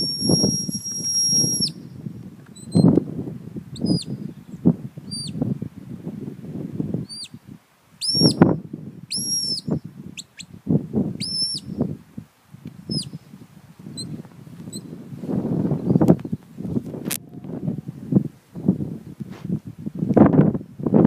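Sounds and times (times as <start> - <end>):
shepherd's whistle blasts: 0.0 - 1.9, 8.0 - 8.5, 9.1 - 9.8, 11.2 - 11.8.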